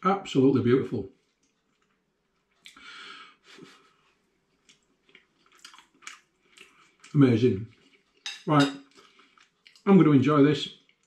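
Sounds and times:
person chewing quietly: 0:01.1 - 0:02.9, 0:03.6 - 0:09.9, 0:10.8 - 0:11.0
breath: 0:02.7 - 0:03.8.

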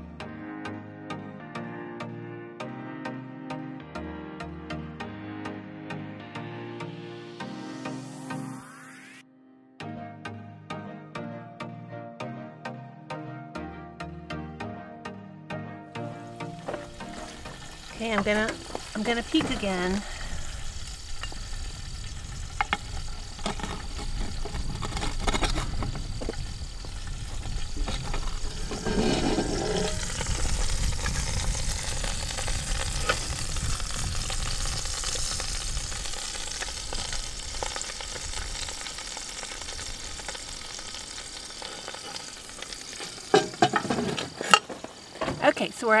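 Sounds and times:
meat sizzling in a pot: 0:16.0 - 0:46.0.

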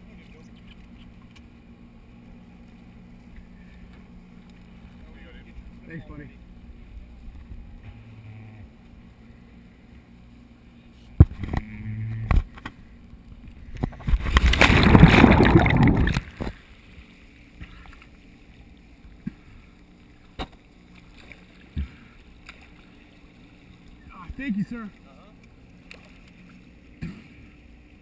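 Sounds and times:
small water sounds: 0:00.0 - 0:07.9, 0:08.7 - 0:28.0
water splashing: 0:13.9 - 0:16.7.

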